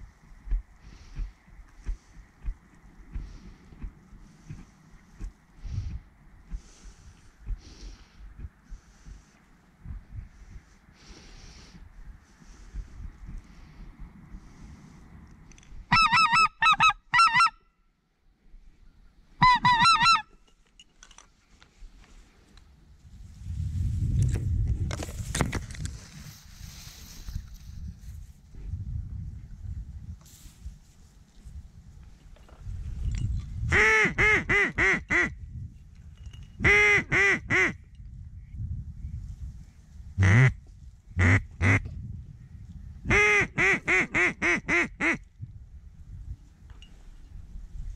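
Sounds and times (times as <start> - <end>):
waterfowl honking: 15.9 - 17.6, 19.4 - 20.4
duck quacking: 40.2 - 40.5.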